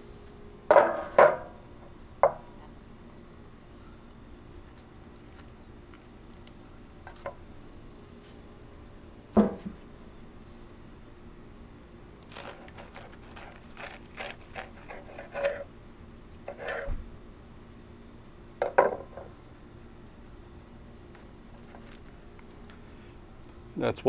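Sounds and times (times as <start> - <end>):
cutting board knocking on griddle: 0.7 - 1.5, 9.4 - 9.8, 18.6 - 19.2.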